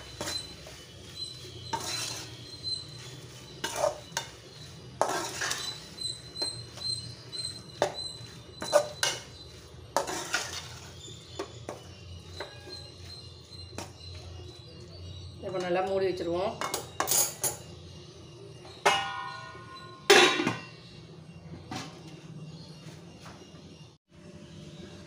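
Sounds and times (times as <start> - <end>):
spoon scraping metal pan: 0.0 - 14.0.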